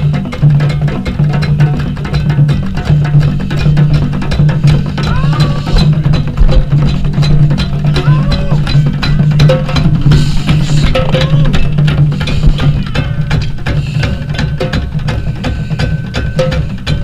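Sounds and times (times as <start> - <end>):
drummers playing: 0.0 - 17.0.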